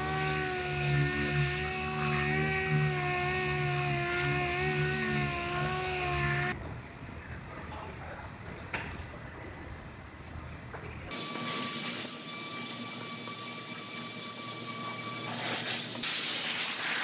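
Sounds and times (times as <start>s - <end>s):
orbital sander whining: 0.0s - 6.6s.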